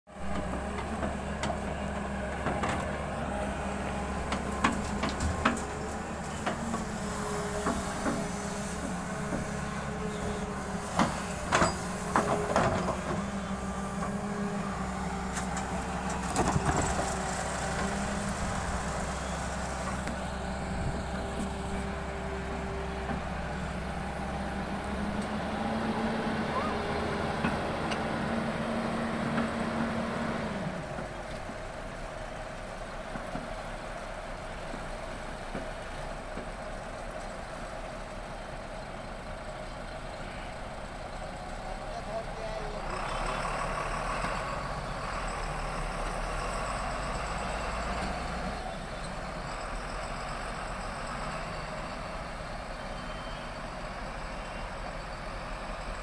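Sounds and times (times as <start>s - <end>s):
excavator diesel engine running: 0.1s - 56.0s
excavator clanks and knocks: 0.2s - 22.0s, 27.3s - 28.1s
hydraulic whine: 2.9s - 24.2s.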